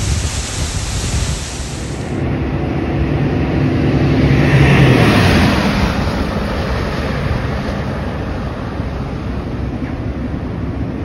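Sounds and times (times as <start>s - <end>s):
steady background rush: 0.0s - 11.0s
vehicle driving past: 1.8s - 9.4s.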